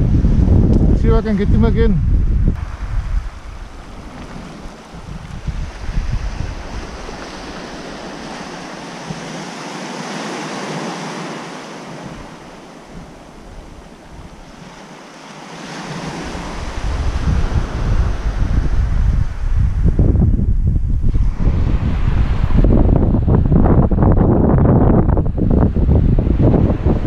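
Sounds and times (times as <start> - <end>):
wind rumbling on microphone: 0.0 - 27.0
small waves breaking on shore: 2.5 - 19.9.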